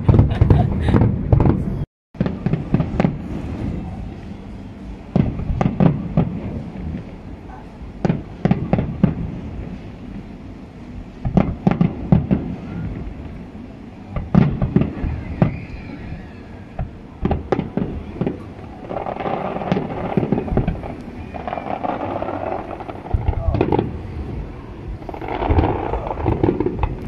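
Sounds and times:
fireworks bangs and crackles: 0.0s - 10.3s, 11.0s - 27.0s
low rumbling: 0.0s - 27.0s.

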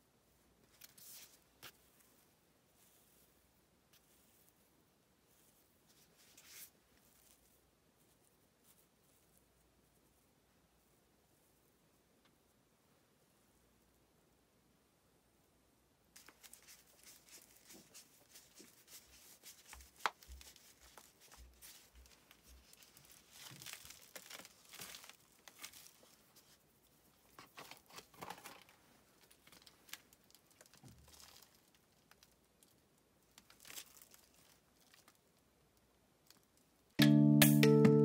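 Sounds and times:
potting soil rustling: 0.6s - 10.0s, 16.2s - 26.6s
plastic pot crinkling: 16.2s - 26.6s, 27.2s - 35.3s.

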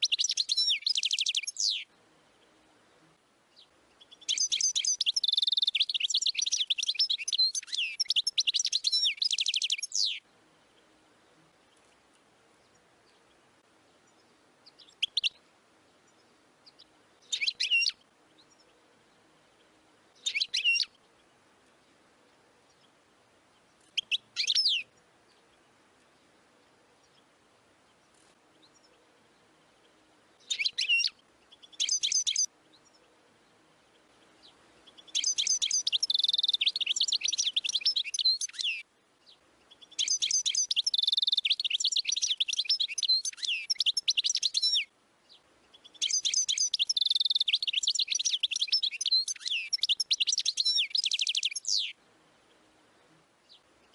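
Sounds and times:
goldfinch singing: 0.0s - 1.9s, 3.5s - 10.3s, 14.1s - 15.4s, 16.1s - 18.7s, 20.2s - 21.0s, 23.6s - 25.6s, 30.4s - 33.0s, 34.2s - 52.0s.

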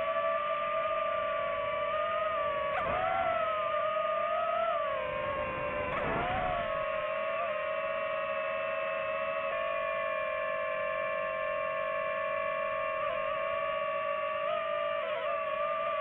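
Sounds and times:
drone propellers whining: 0.0s - 16.0s.

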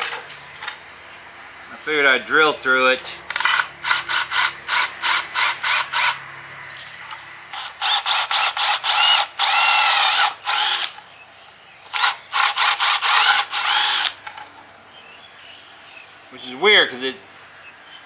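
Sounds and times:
cordless drill boring into wood: 3.4s - 6.2s, 7.6s - 11.0s, 11.9s - 14.2s.

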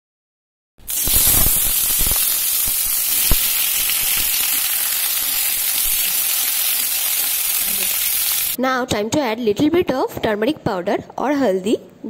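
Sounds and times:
food sizzling in hot oil: 0.8s - 8.6s.

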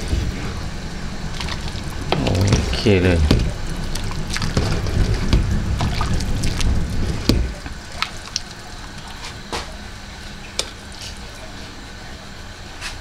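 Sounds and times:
liquid sloshing and pouring: 1.3s - 9.4s
loud low noise: 2.0s - 7.7s.

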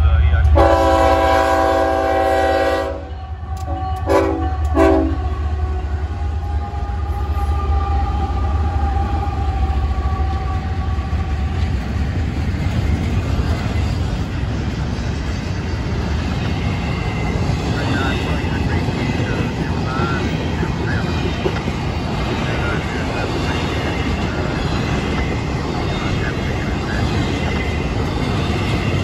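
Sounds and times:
diesel locomotives passing: 0.0s - 29.0s
locomotive horn: 0.4s - 11.3s.

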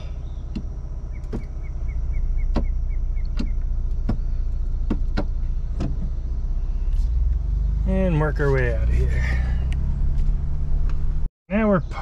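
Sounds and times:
engine idling hum: 0.0s - 12.0s.

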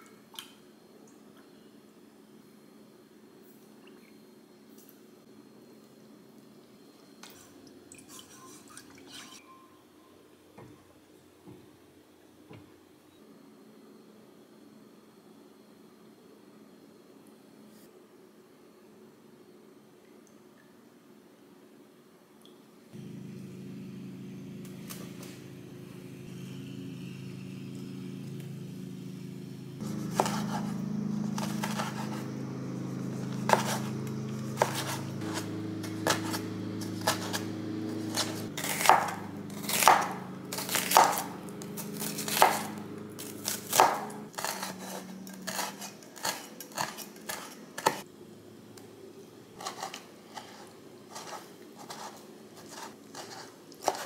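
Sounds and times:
knife chopping on wooden board: 29.9s - 30.7s, 31.4s - 32.2s, 33.5s - 33.9s, 34.6s - 36.4s, 37.0s - 37.4s, 38.0s - 41.3s, 42.0s - 48.0s, 52.7s - 54.0s.

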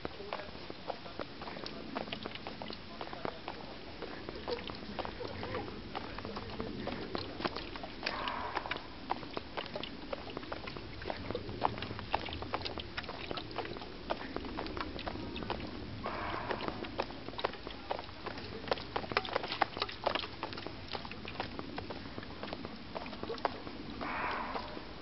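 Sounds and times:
footsteps on stone steps: 0.0s - 25.0s
deer barking: 8.0s - 9.0s, 16.0s - 16.9s, 24.0s - 25.0s.

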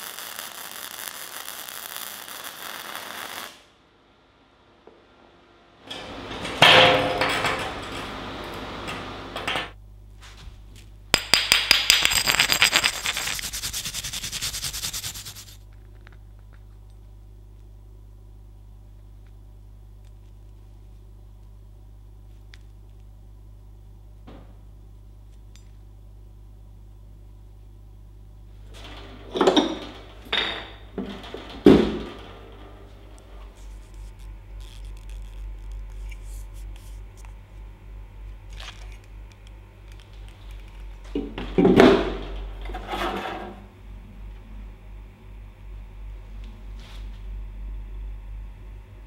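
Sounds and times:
welding arc crackling: 0.0s - 3.7s, 11.2s - 15.6s, 33.6s - 37.0s
steady low hum: 3.8s - 49.0s.

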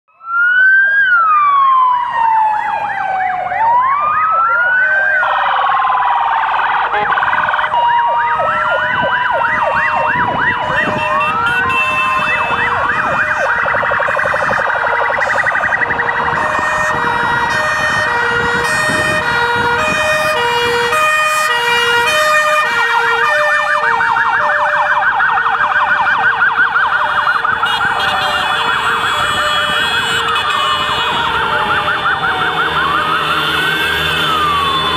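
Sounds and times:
police siren wail: 0.1s - 34.9s
two-tone siren: 0.1s - 34.9s
yelping sirens: 0.1s - 34.9s.

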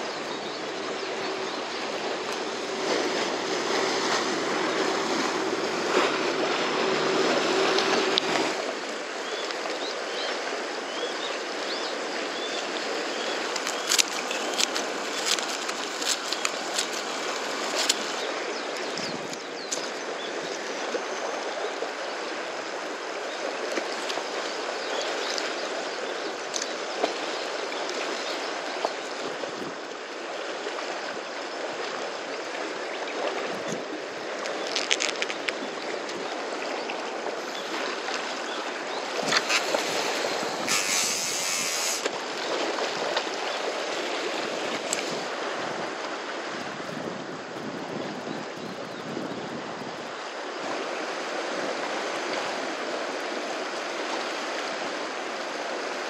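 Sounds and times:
seawater lapping against rocks: 0.0s - 56.0s
fishing tackle clicks: 13.5s - 18.1s.

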